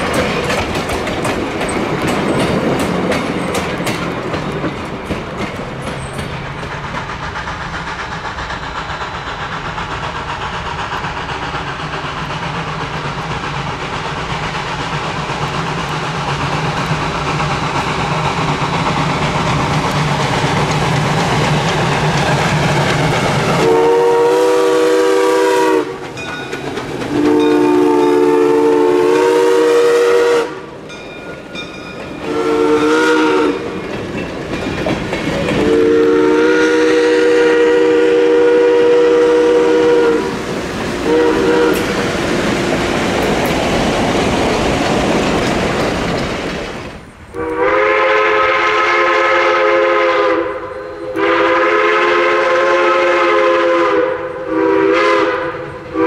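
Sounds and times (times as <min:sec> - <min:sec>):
coaches clattering over rail joints: 0:00.0 - 0:23.8, 0:25.9 - 0:28.2, 0:30.8 - 0:32.3, 0:33.6 - 0:35.7, 0:40.3 - 0:47.2
steam locomotive working: 0:00.0 - 0:56.0
steam whistle blasts: 0:23.6 - 0:26.0, 0:27.1 - 0:30.7, 0:32.2 - 0:33.8, 0:35.6 - 0:40.4, 0:41.0 - 0:42.0, 0:47.4 - 0:56.0.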